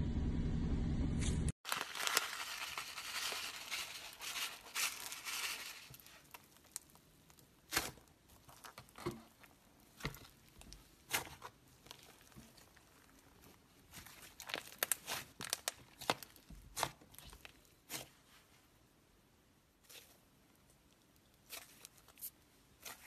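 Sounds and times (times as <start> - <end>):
plastic bag crinkling: 1.6 - 7.0, 11.8 - 17.6
sprinkles crackling: 1.6 - 17.9.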